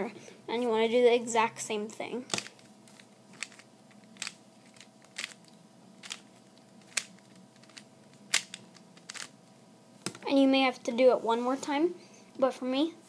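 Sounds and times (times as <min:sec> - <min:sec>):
puzzle cube layers clicking: 0:06.0 - 0:09.3.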